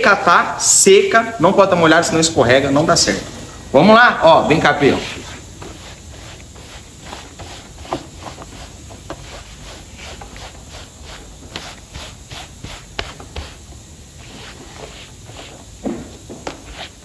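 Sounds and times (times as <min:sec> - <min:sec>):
rubber glove scrubbing carpet: 0:04.5 - 0:17.0.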